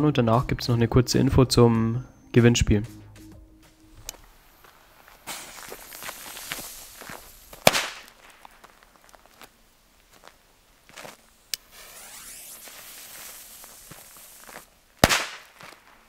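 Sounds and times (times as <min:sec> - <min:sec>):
footsteps on gravel: 0:04.0 - 0:11.3, 0:11.9 - 0:14.8, 0:15.4 - 0:15.9
fuse hissing: 0:04.1 - 0:07.7, 0:11.5 - 0:14.7
firecracker bang: 0:05.2 - 0:06.8, 0:07.6 - 0:08.1, 0:15.0 - 0:15.5
short crack: 0:05.2 - 0:08.8.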